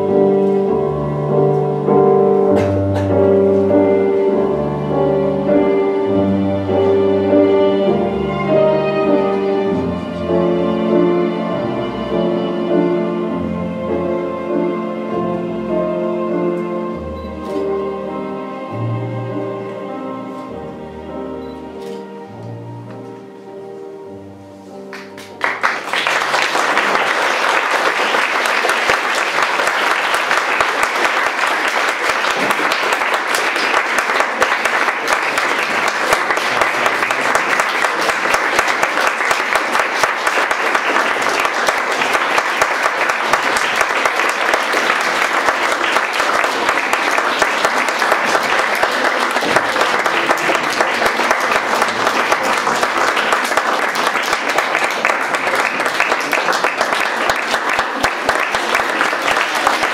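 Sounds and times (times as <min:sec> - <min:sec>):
closing music: 0:00.0 - 0:59.9
audience applauding: 0:24.9 - 0:59.9.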